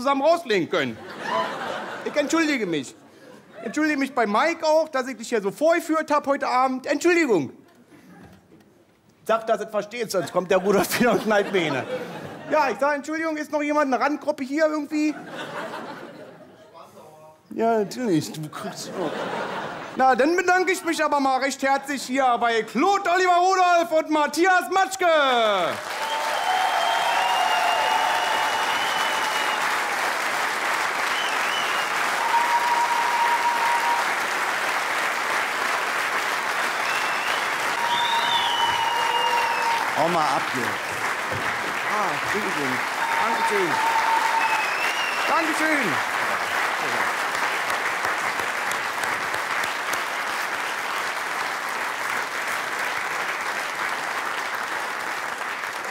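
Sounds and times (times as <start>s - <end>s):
audience applauding: 1.0s - 2.8s, 25.4s - 55.9s
thin whistle-like tones: 36.9s - 39.4s.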